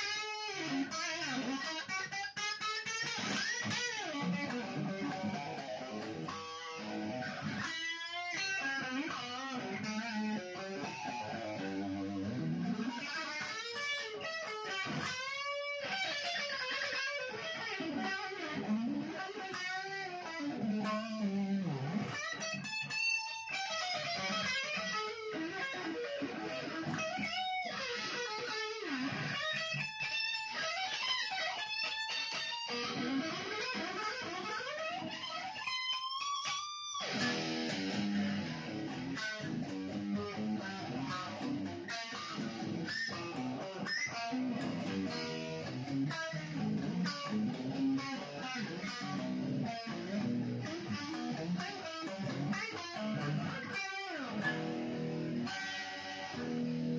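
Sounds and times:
electric guitar lead with string bends: 0:00.0 - 0:56.9.

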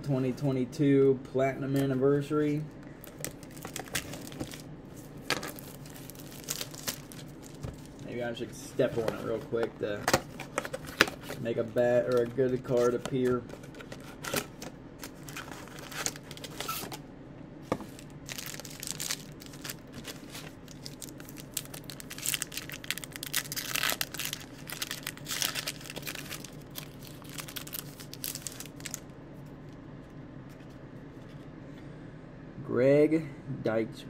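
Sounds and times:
wrapper crinkling and tearing: 0:03.0 - 0:08.2, 0:10.0 - 0:17.0, 0:17.9 - 0:29.1.

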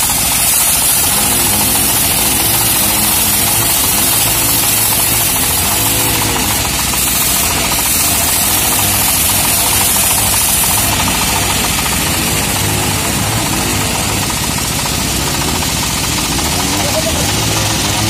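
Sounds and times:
bandsaw mill machine drone: 0:00.0 - 0:18.0
saw blade cutting log hiss: 0:00.0 - 0:18.0.

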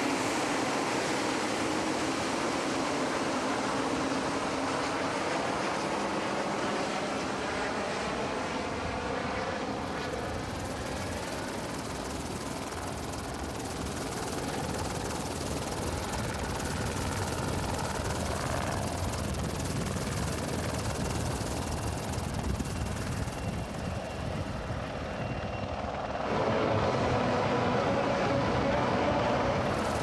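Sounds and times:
jet engines rumbling: 0:00.0 - 0:30.0.

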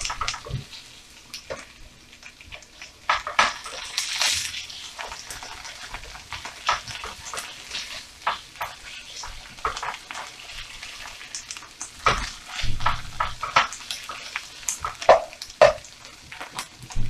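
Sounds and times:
light sizzle: 0:00.0 - 0:17.0
spatula scraping frying pan: 0:03.1 - 0:16.6.

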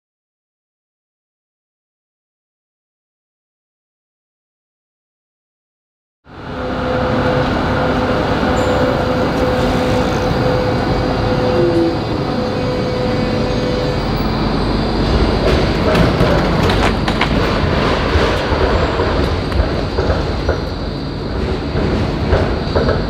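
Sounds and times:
tram rolling past: 0:06.3 - 0:23.0.

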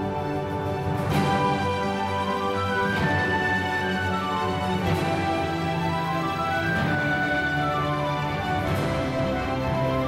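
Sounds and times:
background music with held notes: 0:00.0 - 0:10.0.

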